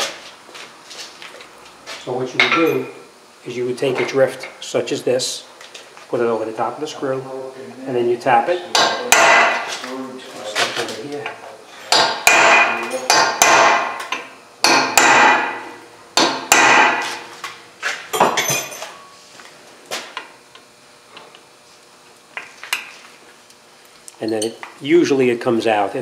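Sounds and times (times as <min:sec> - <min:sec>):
hammer striking metal: 0:08.7 - 0:09.7, 0:11.9 - 0:17.3.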